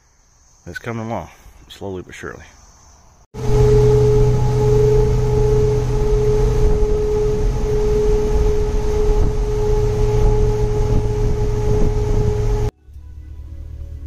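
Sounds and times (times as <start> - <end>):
wind whistling through metal ladder: 3.4 - 12.7
low rumble of wind and road: 3.4 - 14.0.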